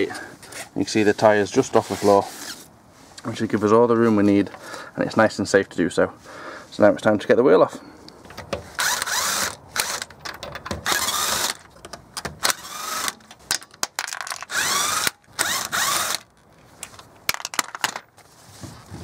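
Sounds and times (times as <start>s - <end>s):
power tool loosening wheel nuts: 8.3s - 16.5s.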